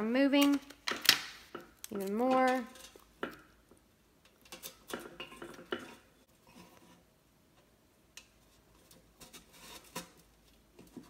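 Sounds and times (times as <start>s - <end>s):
metal pail clinks and knocks: 4.4s - 6.1s.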